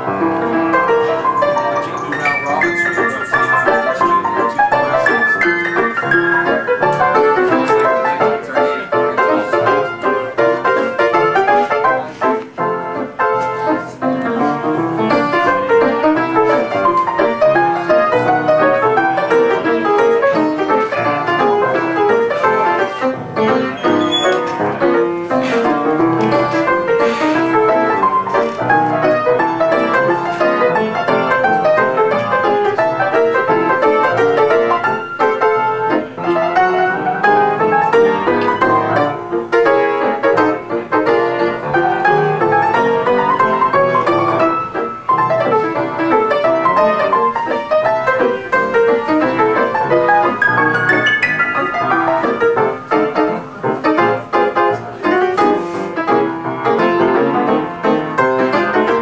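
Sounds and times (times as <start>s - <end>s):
ragtime piano: 0.0s - 59.0s.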